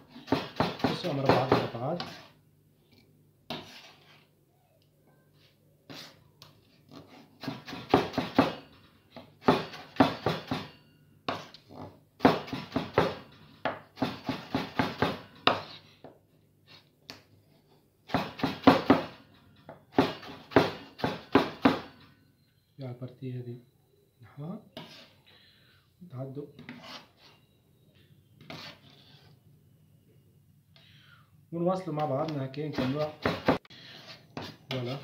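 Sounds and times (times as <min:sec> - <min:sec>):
knife chopping on wooden board: 0:00.2 - 0:02.2, 0:09.2 - 0:10.7, 0:12.2 - 0:15.8, 0:20.0 - 0:21.9, 0:32.8 - 0:33.6.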